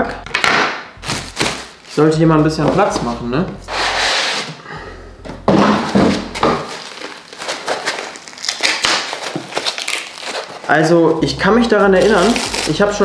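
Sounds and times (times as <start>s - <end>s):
cardboard packaging rustling: 1.0s - 4.6s, 5.7s - 13.0s
paper pouch crinkling: 6.7s - 11.2s, 12.0s - 13.0s.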